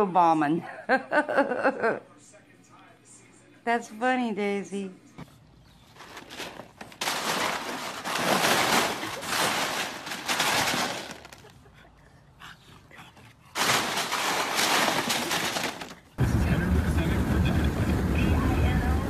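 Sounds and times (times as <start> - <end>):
ice cubes crunching and clattering: 6.0 - 11.5, 13.6 - 16.2.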